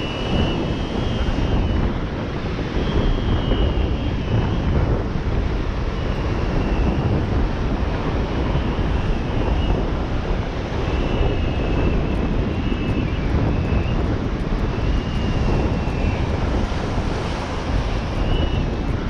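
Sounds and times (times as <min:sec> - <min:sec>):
faint high whistling tones: 0:00.0 - 0:02.0, 0:02.7 - 0:04.8, 0:05.9 - 0:07.2, 0:08.3 - 0:09.9, 0:10.8 - 0:18.8
wind buffeting microphone: 0:00.0 - 0:19.0.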